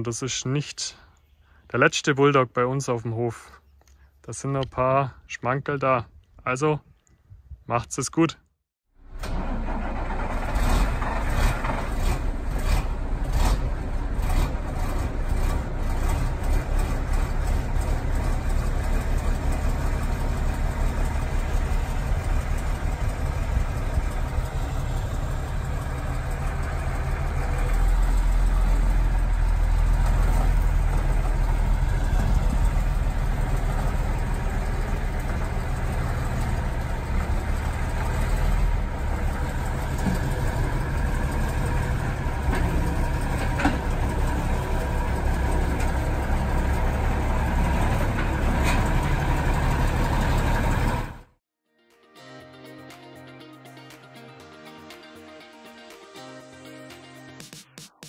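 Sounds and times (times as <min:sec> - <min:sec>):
diesel engine idling: 0:09.0 - 0:51.3.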